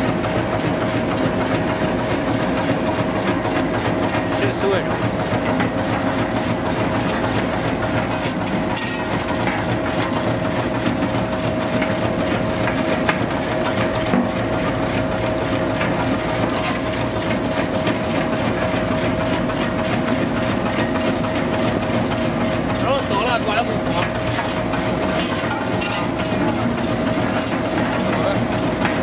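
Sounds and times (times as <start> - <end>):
machine drive humming: 0.0 - 29.0
roots clattering over rollers: 5.4 - 12.0, 15.7 - 18.7, 22.8 - 29.0.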